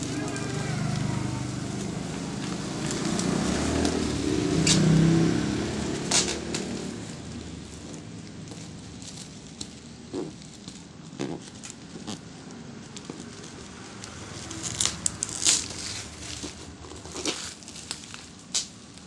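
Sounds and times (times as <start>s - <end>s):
plastic pouch crinkling: 6.0s - 19.0s.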